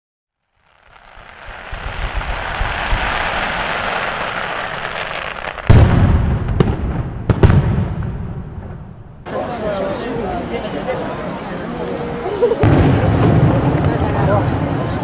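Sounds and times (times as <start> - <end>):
fireworks hissing fizz: 0.4 - 5.7
sharp firework cracks: 0.4 - 9.2
loud deep firework bang: 1.2 - 9.1, 12.6 - 14.9.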